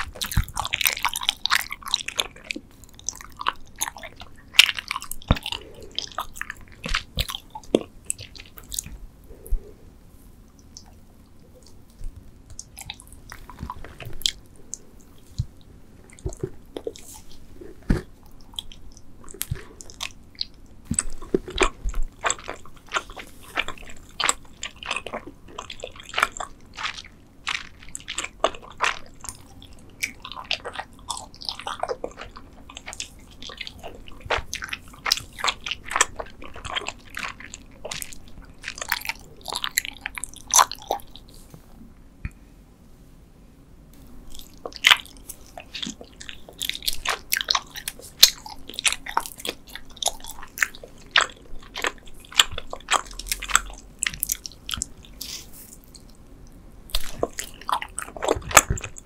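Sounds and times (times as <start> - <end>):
chewing gummy candies: 0.0 - 9.7, 10.5 - 41.4, 44.0 - 59.0.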